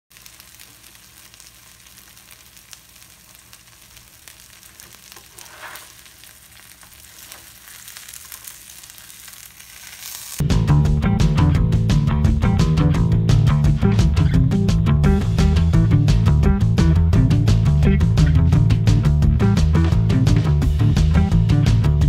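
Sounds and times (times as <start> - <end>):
food sizzling in oil: 0.1 - 10.4
spatula scraping pan: 4.9 - 8.2.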